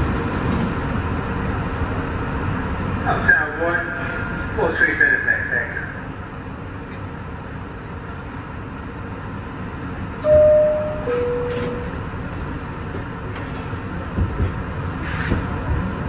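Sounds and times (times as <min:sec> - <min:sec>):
subway car hum: 0:00.0 - 0:16.0
two-note falling door chime: 0:10.2 - 0:11.9.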